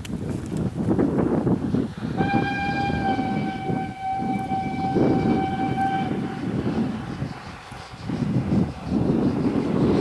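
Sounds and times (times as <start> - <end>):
steam locomotive exhaust beats: 1.1 - 10.0
steam whistle blast: 2.2 - 6.7.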